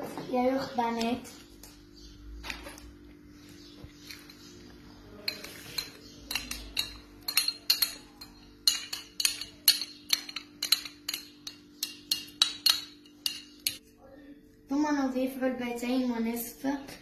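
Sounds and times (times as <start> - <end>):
utensil clinking against mixing bowl: 5.2 - 13.8.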